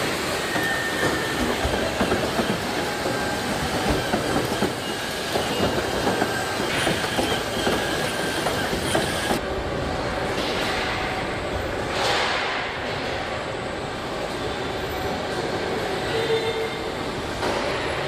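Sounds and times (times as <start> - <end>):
brief high machine whines: 0.0 - 9.4.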